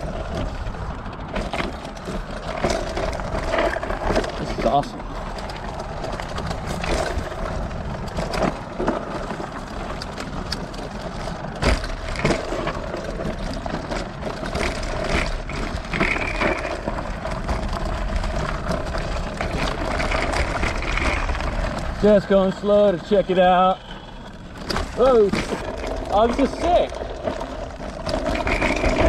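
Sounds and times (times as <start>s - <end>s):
low wind rumble: 0.0s - 29.0s
tyres crunching over gravel: 0.0s - 29.0s
steady whine: 19.4s - 27.8s.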